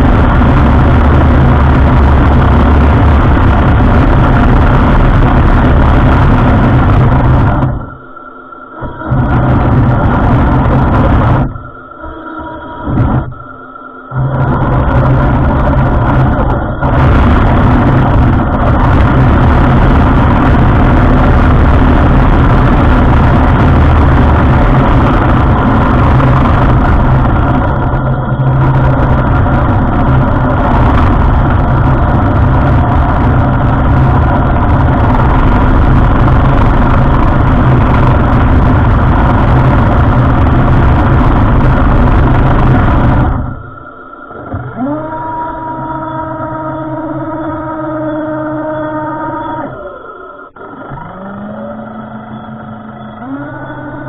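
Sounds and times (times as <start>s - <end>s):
motor whine: 0.0s - 54.0s.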